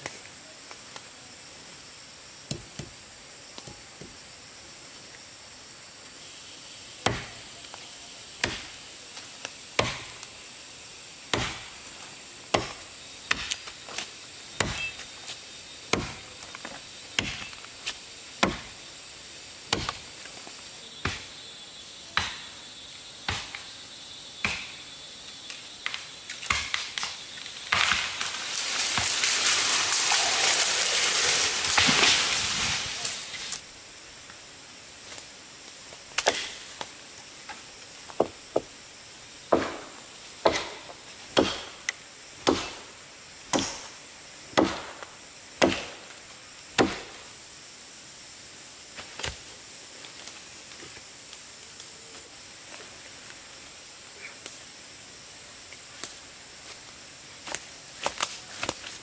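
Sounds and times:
chopping strikes: 7.0 - 7.4, 9.8 - 10.2, 11.3 - 11.7, 12.5 - 13.6, 14.6 - 14.9, 15.9 - 16.2, 17.2 - 17.6, 18.4 - 18.7, 19.7 - 20.0, 22.2 - 22.5, 23.3 - 23.6, 24.4 - 24.7, 39.5 - 41.8, 42.4 - 42.8, 43.5 - 43.9, 44.6 - 46.0, 46.8 - 47.2.

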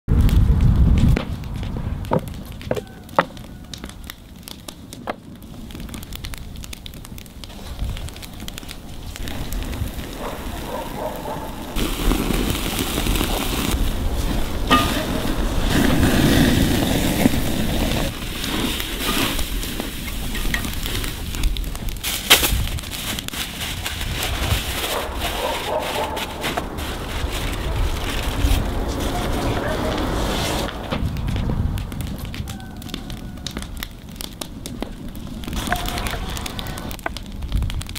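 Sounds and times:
wood fire crackling: 0.1 - 37.9
steak sizzling on a grill: 9.1 - 22.3.

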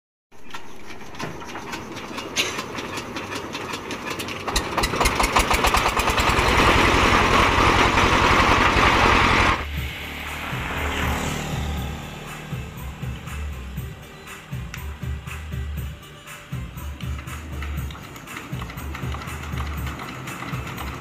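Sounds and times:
diesel engine hand-cranked: 0.3 - 9.6, 16.7 - 21.0
diesel engine running: 0.4 - 21.0
low hum: 4.6 - 18.0.

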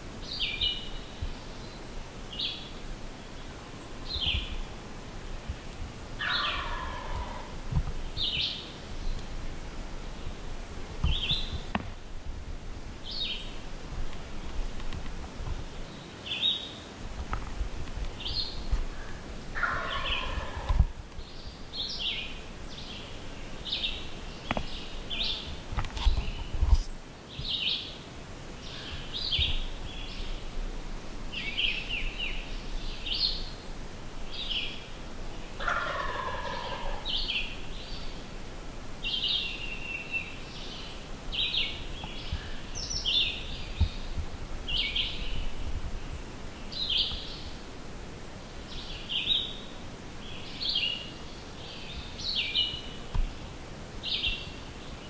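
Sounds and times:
songbirds chirping: 0.0 - 55.0
turkey gobbling: 6.2 - 7.5, 19.6 - 20.8, 35.6 - 37.0.

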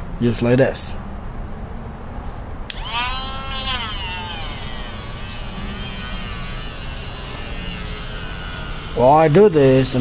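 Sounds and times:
rotary tool high whine: 2.7 - 10.0.

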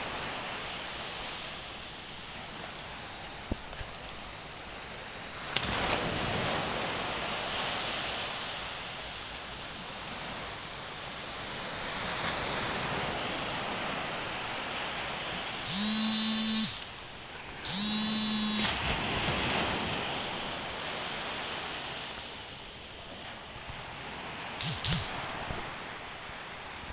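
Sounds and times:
small waves breaking on sand: 0.0 - 26.9
short horn-like tones: 15.7 - 16.8, 17.6 - 18.8.

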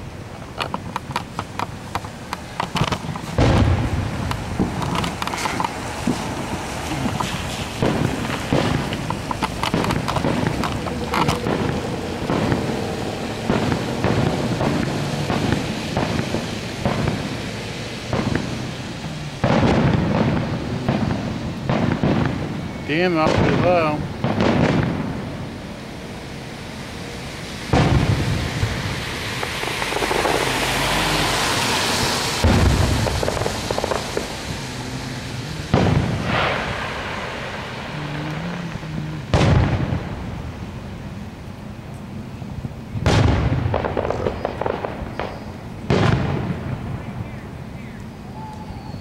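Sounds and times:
crackling firework pops: 0.0 - 25.7, 27.4 - 40.8, 41.8 - 49.0
muffled firework booms: 1.8 - 25.5, 27.7 - 30.5, 32.4 - 40.5, 43.0 - 47.3.

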